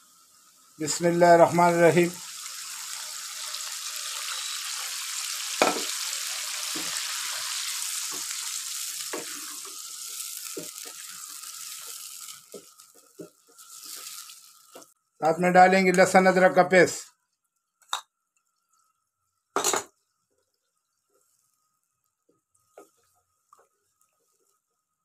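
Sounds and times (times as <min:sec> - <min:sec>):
meat sizzling in a frying pan: 0:00.0 - 0:15.0
wooden spatula scraping a pan: 0:09.1 - 0:14.8.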